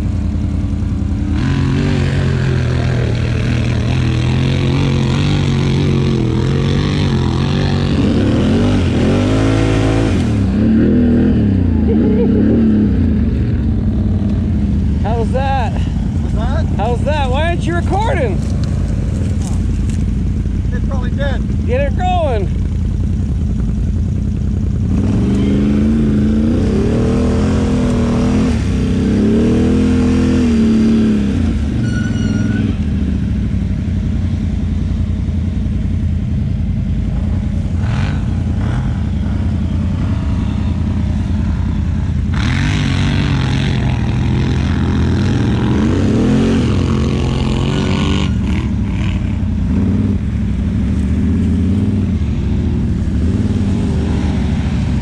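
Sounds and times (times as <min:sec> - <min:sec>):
atv engines revving: 0:00.0 - 0:55.0.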